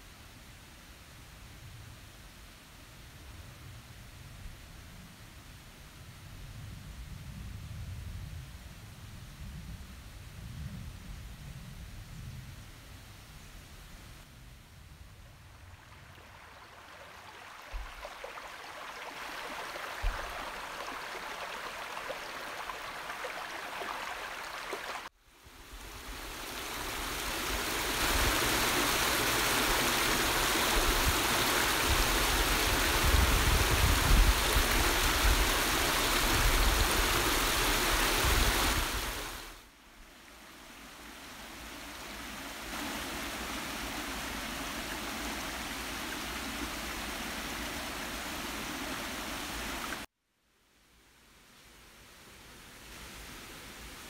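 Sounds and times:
stream running over stones: 15.2s - 50.1s
water spilling over cascade: 15.4s - 25.1s, 26.0s - 39.5s.

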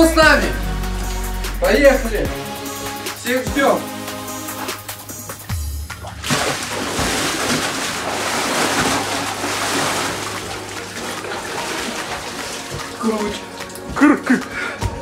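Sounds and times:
water splashing and churning: 4.0s - 15.0s.

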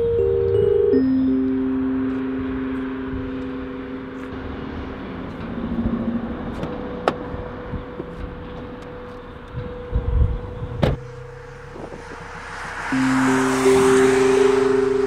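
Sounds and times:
low music note: 0.0s - 6.4s, 9.5s - 15.0s
outdoor background noise: 0.0s - 15.0s.

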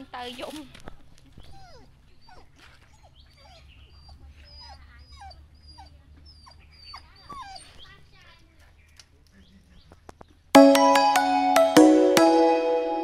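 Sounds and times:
dog whimpering: 1.4s - 7.8s.

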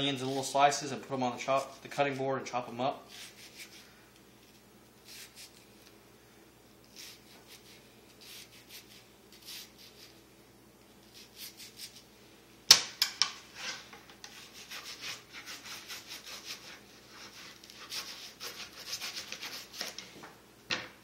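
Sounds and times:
knife cutting onion on board: 3.1s - 3.8s, 5.0s - 5.6s, 6.9s - 10.2s, 13.2s - 20.0s.

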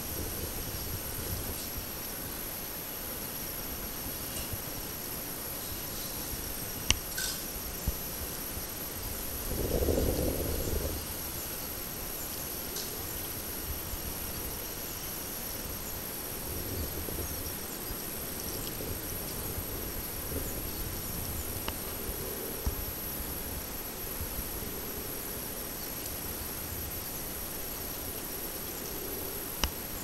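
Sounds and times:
high thin insect whine: 0.0s - 30.0s
steady hiss: 0.0s - 30.0s
faint ticks: 6.0s - 8.0s, 29.6s - 29.8s.

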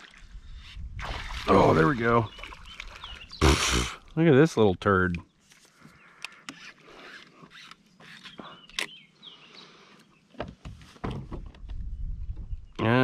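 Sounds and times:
fishing rod clicks and rustles: 5.1s - 9.0s.

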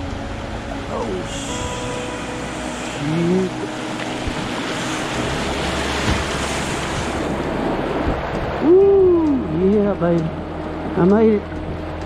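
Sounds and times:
rushing whitewater: 0.0s - 12.0s
dull knocks: 6.0s - 7.2s.

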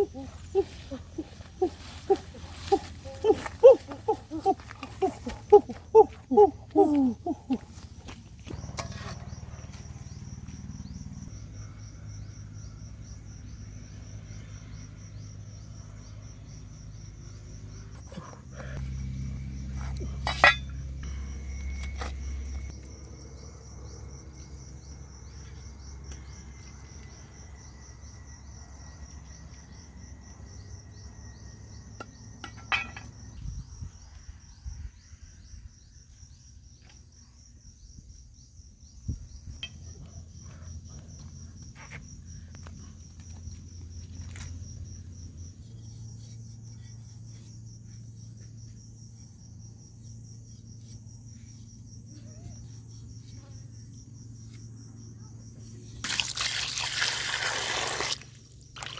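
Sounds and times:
insects trilling: 0.0s - 58.9s.

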